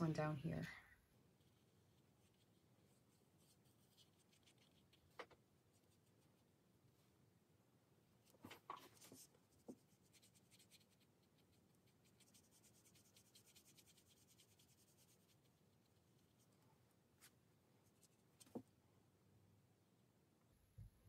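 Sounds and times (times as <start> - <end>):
paintbrush strokes on paper: 1.2 - 7.1, 8.2 - 18.7.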